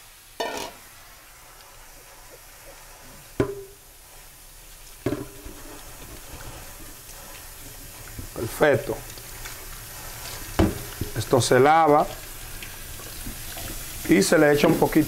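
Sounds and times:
pressure cooker steam hiss: 0.0 - 15.0
metal pot clanking: 0.4 - 0.8, 3.4 - 3.8, 5.0 - 8.4.

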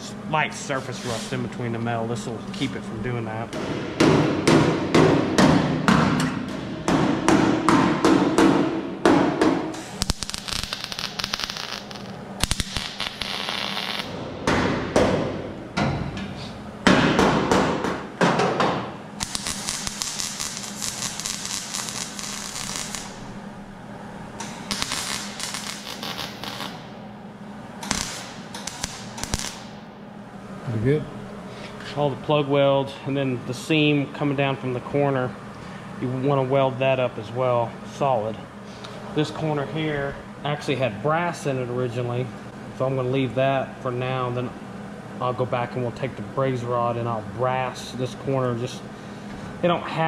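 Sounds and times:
welder arc crackling: 9.8 - 14.1, 19.2 - 27.0, 27.8 - 29.9.

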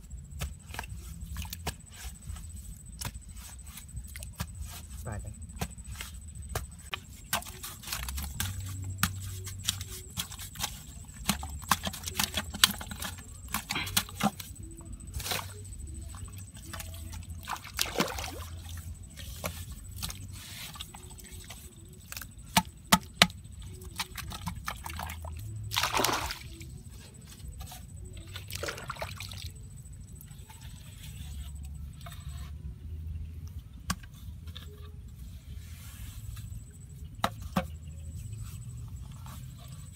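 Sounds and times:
wet mud slopping: 15.2 - 21.2, 24.0 - 26.8, 28.2 - 29.6.

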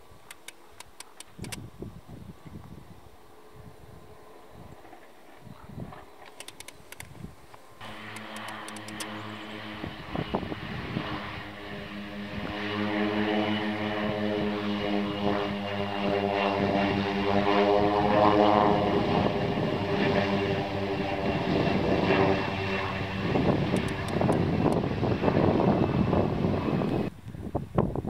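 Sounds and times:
turboprop plane flying past: 0.6 - 27.2.

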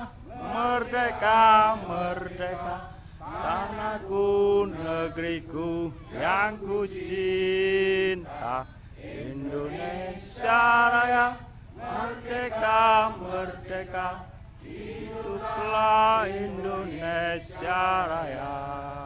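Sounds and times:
men singing a slow chant: 0.0 - 19.0.

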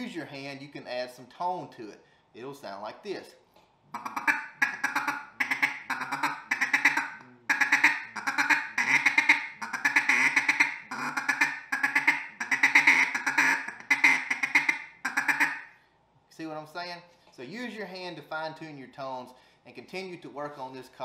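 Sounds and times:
duck call chatter: 3.9 - 15.7.

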